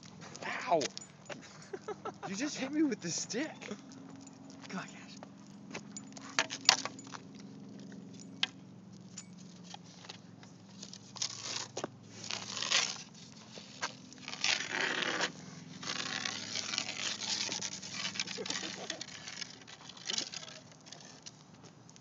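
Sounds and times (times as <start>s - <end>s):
stick scraping along ground: 1.8s - 3.8s, 5.7s - 7.2s, 8.4s - 22.0s.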